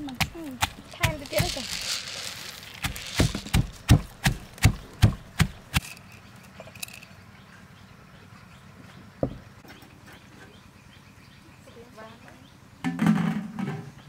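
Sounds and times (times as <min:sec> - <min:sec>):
stone pestle pounding in mortar: 0:00.0 - 0:01.6, 0:02.8 - 0:05.8.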